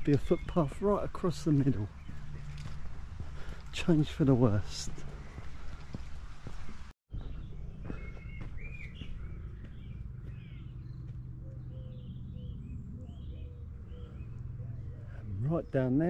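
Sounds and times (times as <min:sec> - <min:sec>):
birds singing and chirping: 0:00.0 - 0:16.0
low rumble outdoors: 0:00.0 - 0:16.0.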